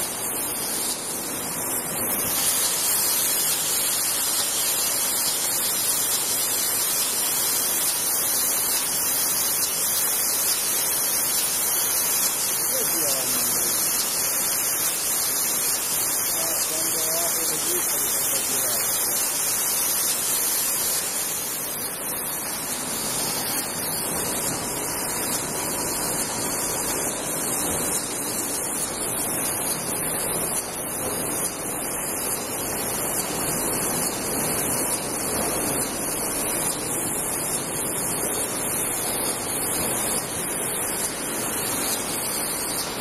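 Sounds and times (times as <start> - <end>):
bottle filling line mechanical noise: 0.0 - 43.0
constant high hiss: 0.0 - 43.0.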